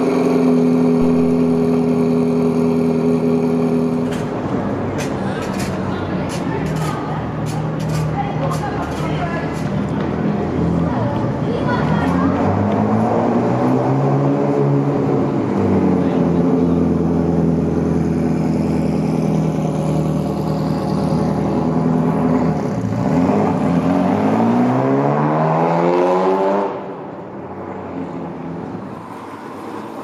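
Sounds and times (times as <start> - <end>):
sports car engine accelerating: 0.0 - 6.1, 7.4 - 30.0.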